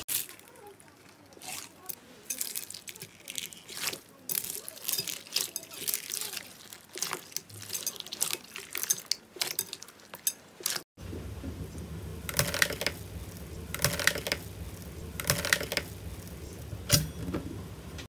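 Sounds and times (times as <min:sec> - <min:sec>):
foil crinkling: 0:00.0 - 0:10.8
low steady hum: 0:11.0 - 0:18.0.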